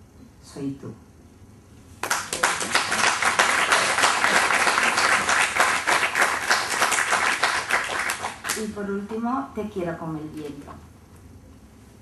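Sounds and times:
audience applauding: 0:02.0 - 0:08.7.

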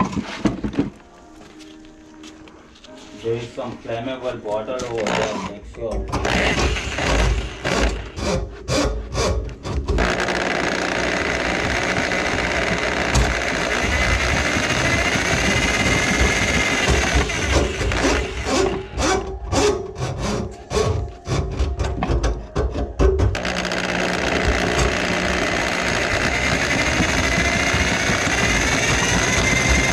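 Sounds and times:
electric drain auger running: 0:06.2 - 0:08.3, 0:09.9 - 0:19.3, 0:23.3 - 0:29.9.

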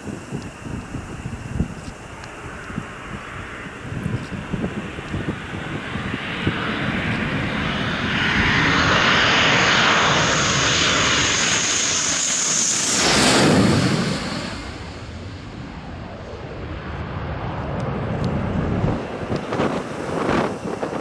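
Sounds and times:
jet engines whining overhead: 0:00.0 - 0:21.0.

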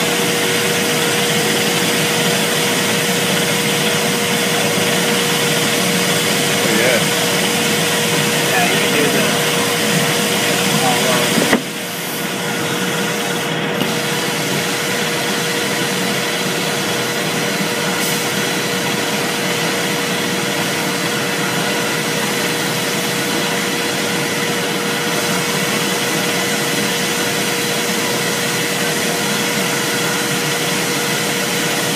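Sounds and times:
mid-pitched machine hum: 0:00.0 - 0:31.9
abrasive blasting hiss: 0:01.0 - 0:12.5.

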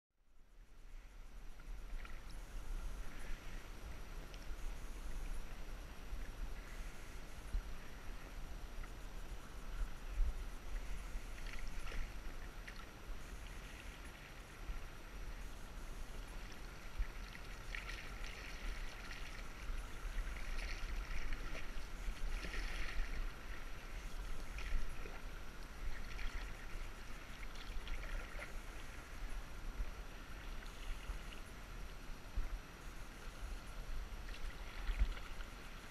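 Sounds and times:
water splashing around canoe: 0:16.2 - 0:29.3.

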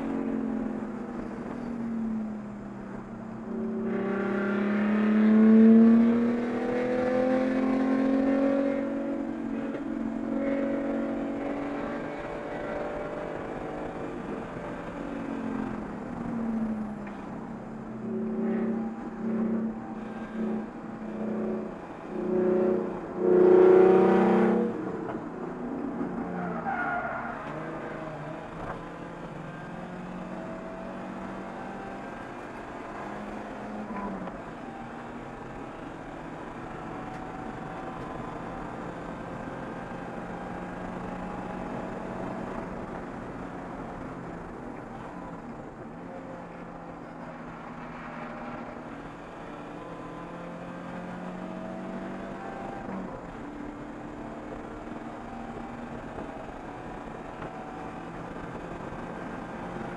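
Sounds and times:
race car engine: 0:00.0 - 0:59.9
tires squealing: 0:26.0 - 0:27.9.

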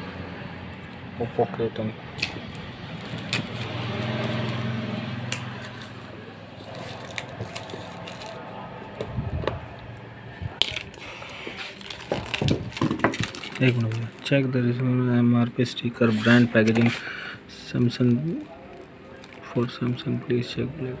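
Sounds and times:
passing vehicle engine hum: 0:00.0 - 0:10.6
plastic wrap crinkling: 0:06.6 - 0:08.4, 0:10.5 - 0:14.5, 0:17.6 - 0:20.0.

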